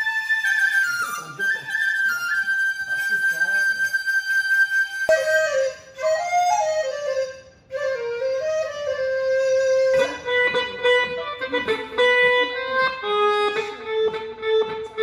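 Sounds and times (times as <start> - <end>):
plucked guitar accompaniment: 9.4 - 15.0
electronic saxophone melody: 9.9 - 15.0.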